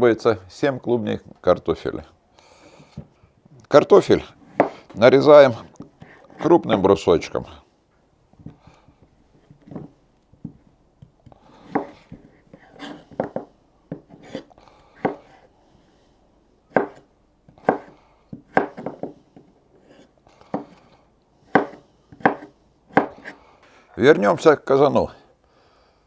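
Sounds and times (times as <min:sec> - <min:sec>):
knife cutting potatoes: 0:11.1 - 0:15.5, 0:16.7 - 0:19.2, 0:21.5 - 0:23.4.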